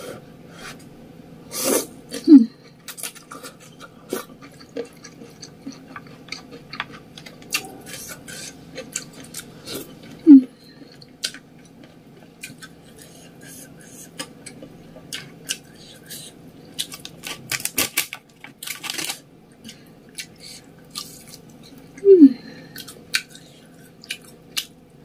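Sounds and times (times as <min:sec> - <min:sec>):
slurping and chewing noodles: 0:01.5 - 0:17.8.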